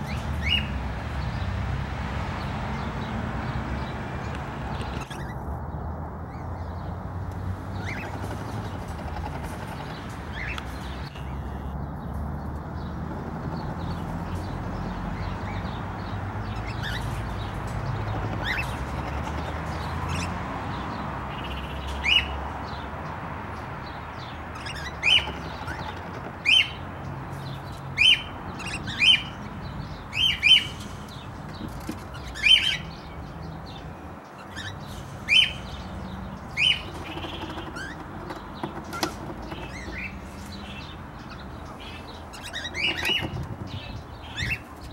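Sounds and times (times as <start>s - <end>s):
cockatiels chirping: 36.6s - 40.1s, 41.2s - 44.7s.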